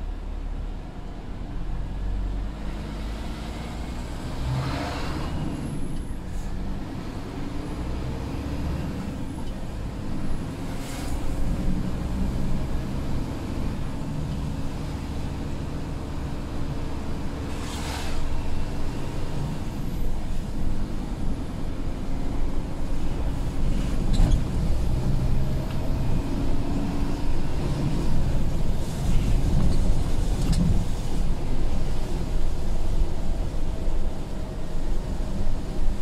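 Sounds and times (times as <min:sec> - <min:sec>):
truck diesel engine rumble: 0:00.0 - 0:36.0
tyre noise on wet road: 0:01.6 - 0:36.0
windscreen wipers swishing: 0:09.2 - 0:36.0.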